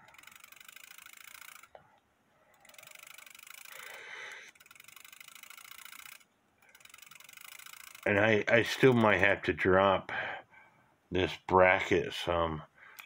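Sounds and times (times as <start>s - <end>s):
clock ticking fast: 4.5s - 9.4s.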